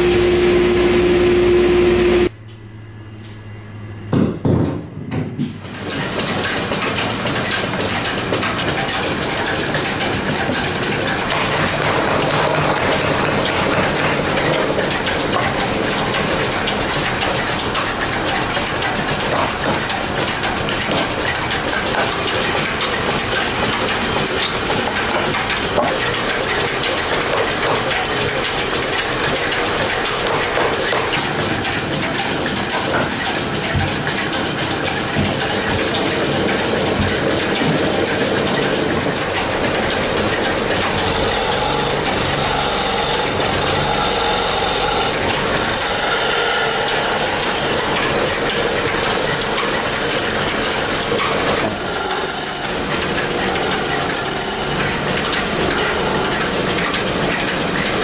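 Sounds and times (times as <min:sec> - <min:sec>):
chisel scraping turning wood: 0:41.0 - 0:47.8, 0:49.3 - 0:52.7, 0:53.4 - 0:54.7.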